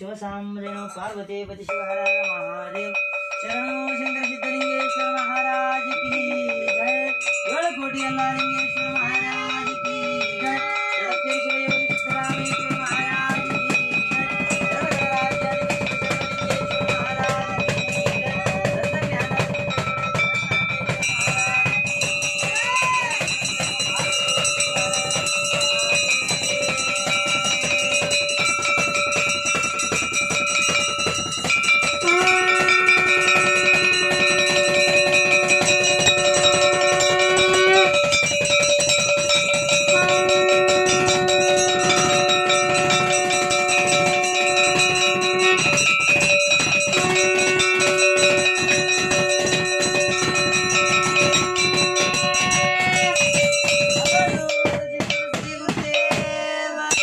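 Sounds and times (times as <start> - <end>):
bells ringing rapidly: 0.0 - 57.0
long held notes: 3.3 - 54.6.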